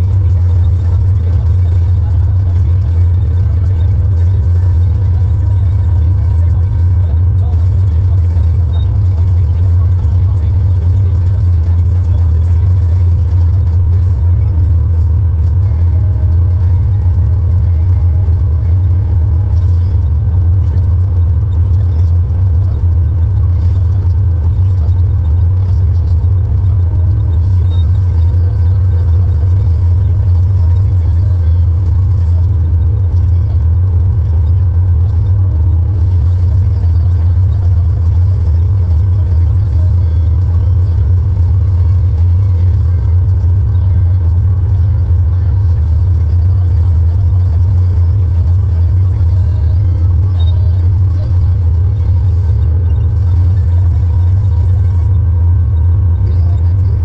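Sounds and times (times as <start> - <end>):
tractor engine droning: 0.0 - 57.0.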